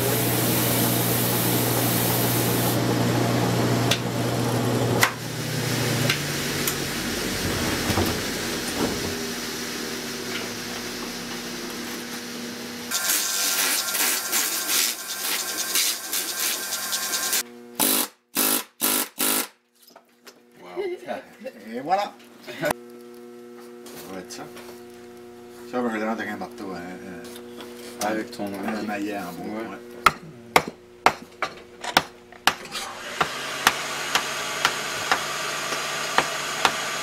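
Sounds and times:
band saw cutting wood: 0.0s - 12.3s, 12.9s - 19.5s, 32.7s - 37.0s
saw motor humming down: 0.0s - 18.5s, 32.7s - 37.0s.

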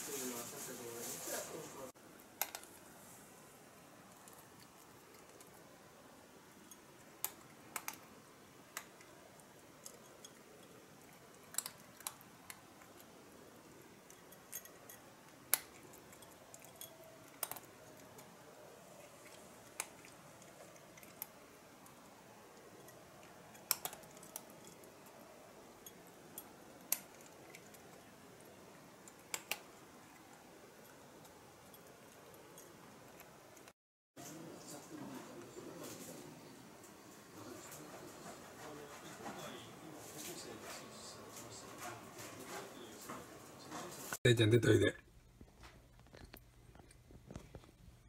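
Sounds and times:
cat crunching dry kibble: 8.9s - 13.1s.

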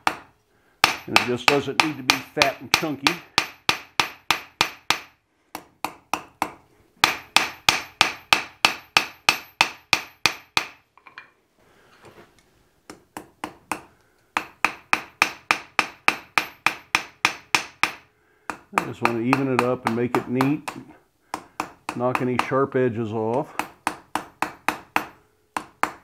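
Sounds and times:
hammer striking steel on anvil: 0.0s - 11.3s, 13.2s - 22.6s, 23.5s - 26.0s.

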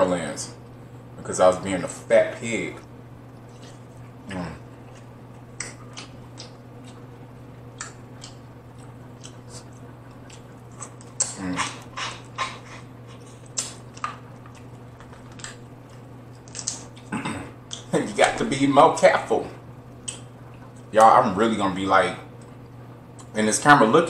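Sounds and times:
lip smacks and chewing: 2.8s - 17.1s, 17.7s - 17.9s, 19.9s - 21.0s, 22.3s - 23.4s
person humming: 4.3s - 4.6s.

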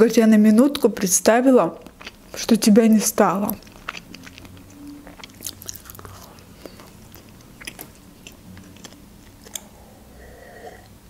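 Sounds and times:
close chewing: 1.8s - 11.0s
wet mouth clicks: 3.4s - 9.8s.

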